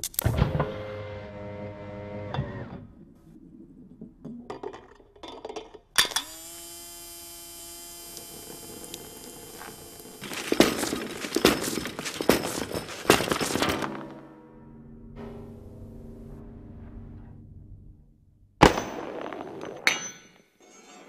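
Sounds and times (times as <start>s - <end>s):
washer pump whine: 6.2s - 12.2s.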